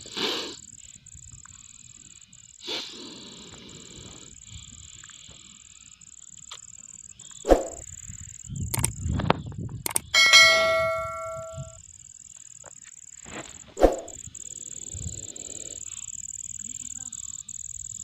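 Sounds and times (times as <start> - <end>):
high insect drone: 0.0 - 18.0
bell notification ding: 10.2 - 11.8.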